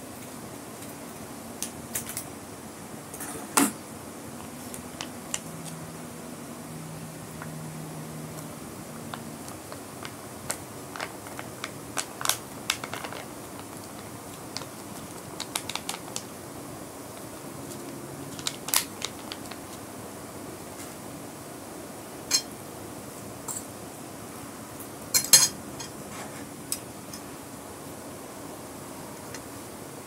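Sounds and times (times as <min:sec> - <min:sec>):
plastic sachet crinkling: 0:09.0 - 0:16.4, 0:17.2 - 0:19.8
cutlery clinking on glass plate: 0:25.2 - 0:26.0.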